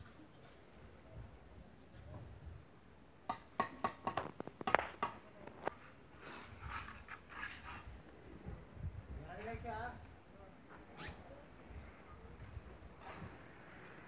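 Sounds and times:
trowel scraping: 6.2s - 7.9s.

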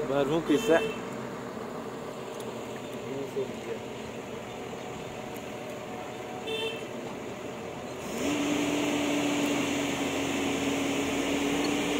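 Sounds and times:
excavator diesel engine: 0.0s - 11.9s
hydraulic whine: 7.8s - 11.9s.

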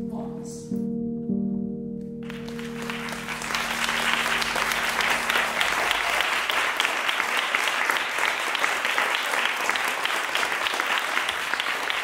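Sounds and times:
held music chord: 0.0s - 7.0s
crowd applauding: 2.2s - 12.0s.

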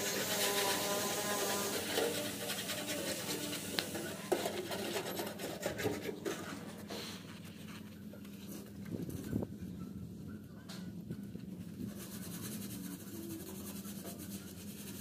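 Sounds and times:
pipe scraping on concrete: 0.0s - 7.8s.

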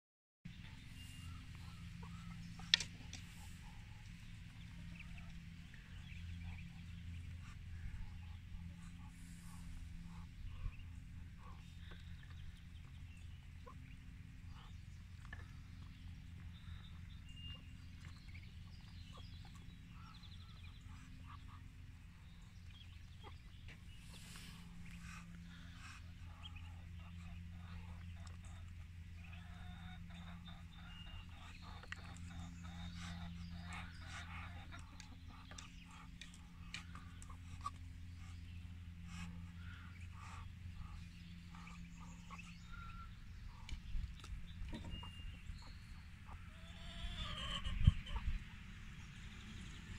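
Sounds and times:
ducklings peeping: 0.5s - 49.9s
low steady hum: 0.5s - 49.9s.

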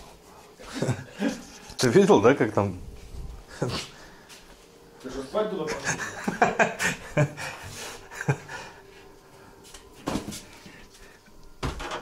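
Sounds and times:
faint steady hum: 0.0s - 12.0s
knocks and thumps in wooden room: 11.6s - 12.0s.

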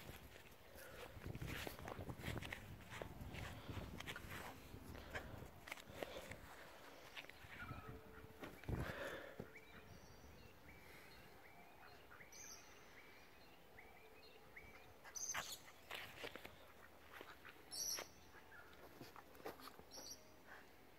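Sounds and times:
small birds chirping: 0.1s - 20.9s.

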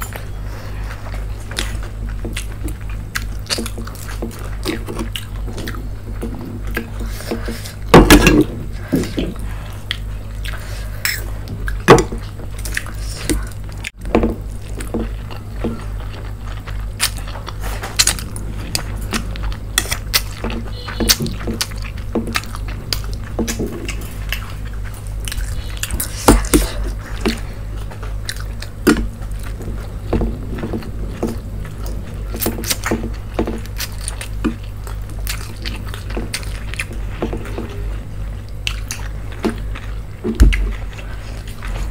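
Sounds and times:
chewing and slurping: 0.0s - 41.9s
steady low hum: 0.0s - 41.9s.

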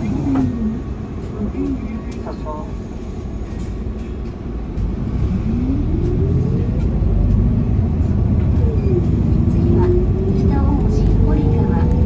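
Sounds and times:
bus engine rumble: 0.0s - 12.0s.

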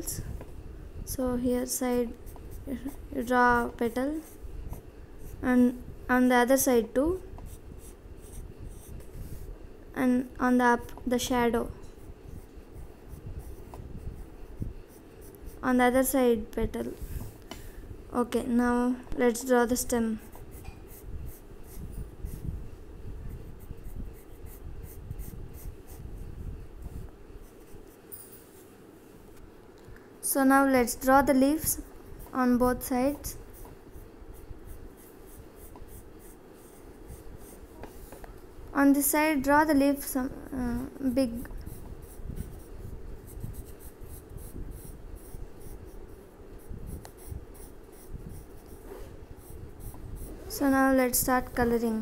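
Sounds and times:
pencil scratching on paper: 1.6s - 5.7s, 7.1s - 9.5s, 10.4s - 16.1s, 20.0s - 22.4s, 23.3s - 28.7s, 31.8s - 38.2s, 40.8s - 51.7s.

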